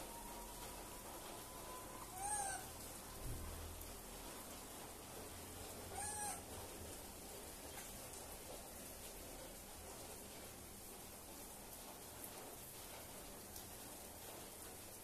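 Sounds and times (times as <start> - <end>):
steady background hiss: 0.0 - 15.0
monkey calls: 1.7 - 2.8, 5.9 - 6.4.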